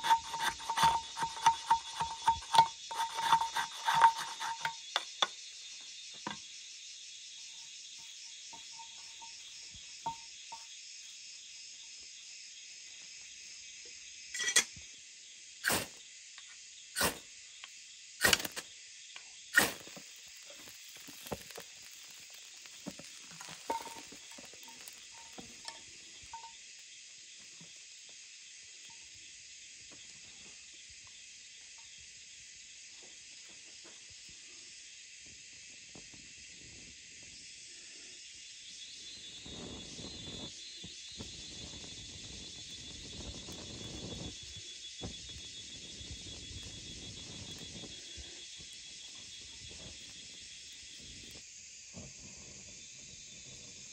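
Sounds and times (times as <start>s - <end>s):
knife scraping ferro rod: 0.0s - 5.1s, 18.2s - 18.6s
insect chirring: 0.0s - 32.8s, 37.1s - 51.8s.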